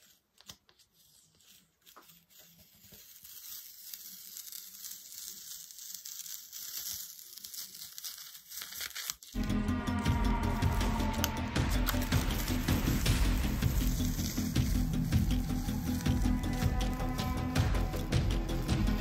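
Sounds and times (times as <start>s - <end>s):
film peeling off paper: 0.0s - 19.0s
background music: 9.4s - 19.0s.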